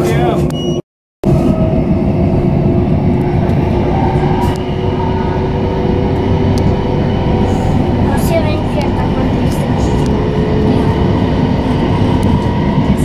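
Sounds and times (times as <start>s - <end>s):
train rolling rumble: 0.0s - 0.6s, 1.2s - 13.0s.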